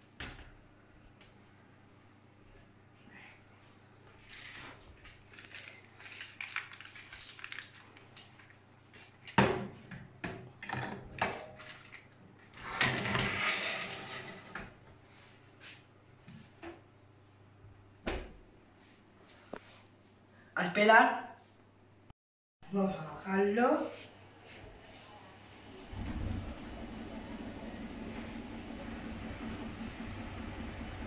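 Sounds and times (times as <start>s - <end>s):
tray scraping onto oven rack: 12.6s - 14.7s.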